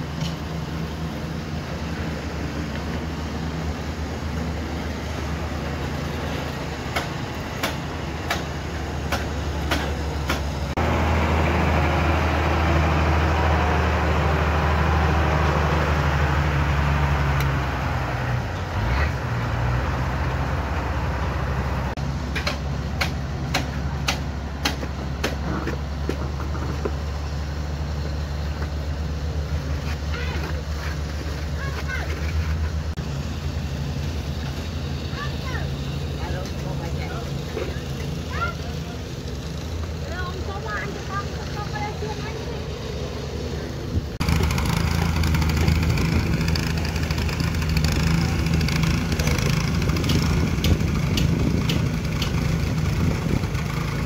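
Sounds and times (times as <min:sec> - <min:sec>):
engine droning: 0:00.0 - 0:54.0
rushing machine noise: 0:43.8 - 0:54.0.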